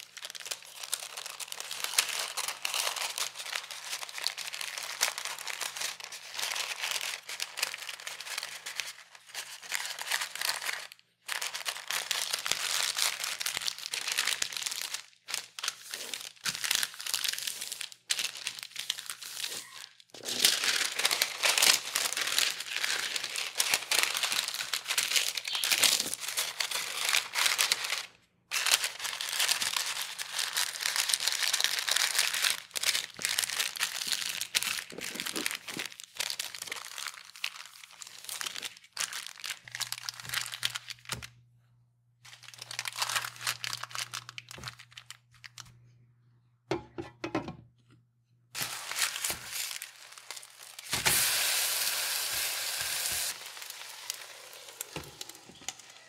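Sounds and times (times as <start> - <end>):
baking paper crinkling: 0.0 - 41.4, 42.2 - 45.9, 48.5 - 56.0
food sizzling in a pan: 50.9 - 55.5.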